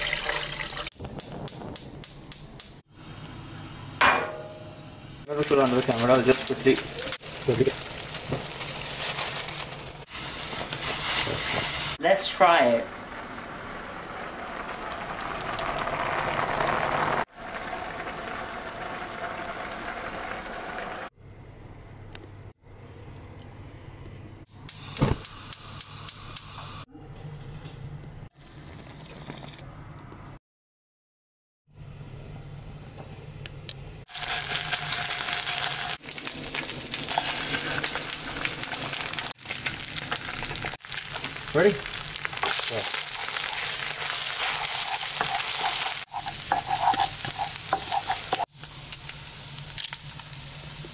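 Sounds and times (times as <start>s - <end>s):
pot of water boiling: 0.0s - 1.9s, 5.3s - 12.3s, 12.9s - 21.1s, 34.1s - 50.9s
eggs sizzling in hot oil: 5.4s - 12.0s, 14.2s - 20.9s, 34.1s - 50.9s.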